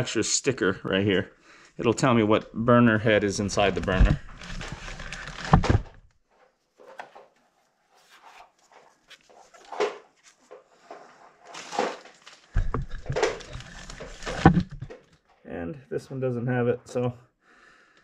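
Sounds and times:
plastic bag crinkling: 0:03.4 - 0:05.9, 0:08.8 - 0:15.2.

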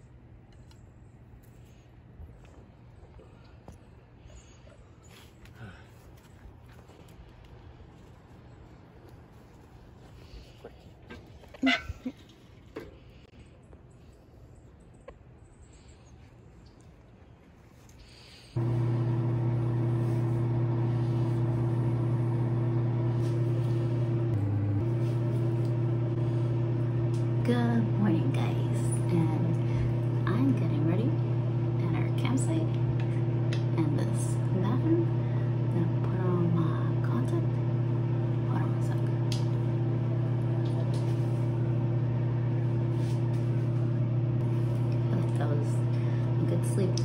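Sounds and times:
low machine hum: 0:18.1 - 0:47.0.

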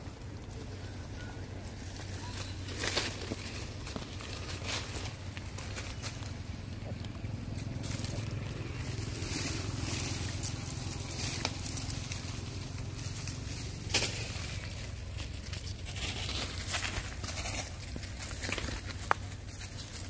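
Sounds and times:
dry leaves rustling and crackling: 0:00.0 - 0:20.0
low steady rumble: 0:00.0 - 0:20.0.

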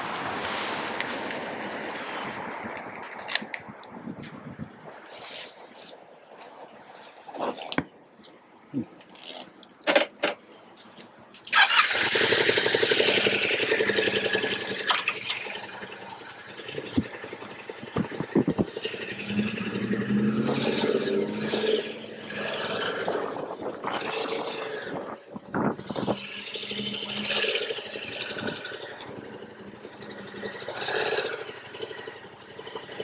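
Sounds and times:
motorcycle engine running: 0:11.7 - 0:33.0.

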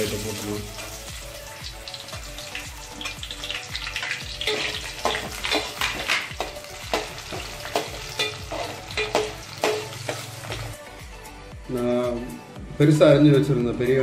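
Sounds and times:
onions sizzling in hot oil: 0:00.0 - 0:10.8
steel spoon scraping a pan: 0:04.4 - 0:10.7.

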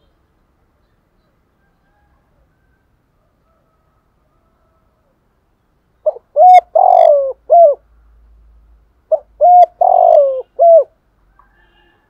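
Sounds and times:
dove cooing: 0:06.0 - 0:07.8, 0:09.1 - 0:11.0.

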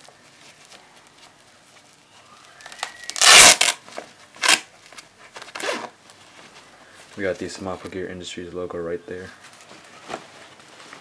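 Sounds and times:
fabric handling: 0:00.0 - 0:11.0
velcro ripping open: 0:02.6 - 0:06.0.

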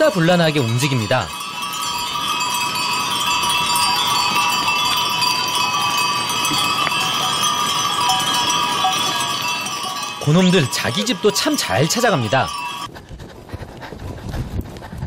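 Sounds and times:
goat bells jangling: 0:00.0 - 0:12.9
hooves on stony track: 0:01.5 - 0:11.4.

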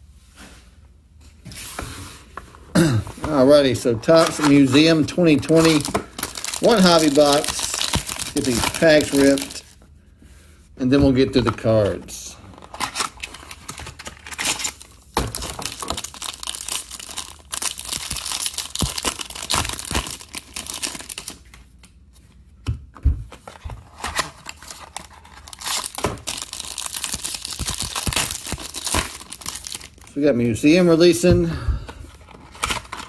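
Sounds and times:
foil crinkling: 0:03.4 - 0:09.8, 0:11.4 - 0:21.5, 0:23.8 - 0:30.1
wrappers tearing: 0:03.5 - 0:09.7, 0:12.5 - 0:21.4, 0:23.9 - 0:30.1.

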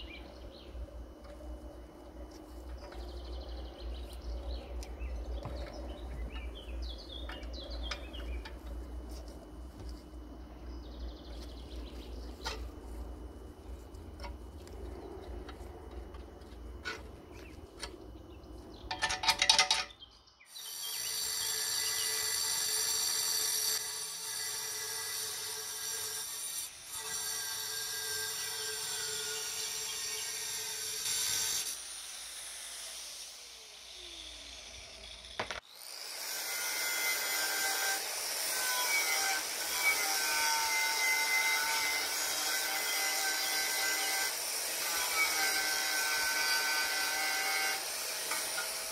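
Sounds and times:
angle grinder whining: 0:20.5 - 0:48.9.

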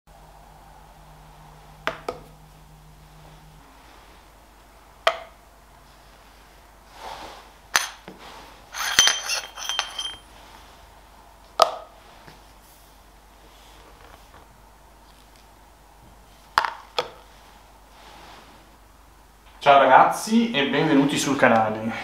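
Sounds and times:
metal parts knocking: 0:08.8 - 0:10.2
ringing metallic clinks: 0:08.8 - 0:10.3.

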